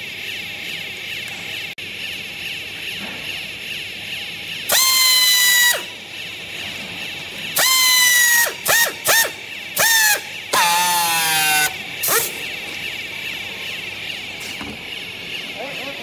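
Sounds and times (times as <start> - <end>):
pneumatic strapping tool whining: 4.6 - 12.9.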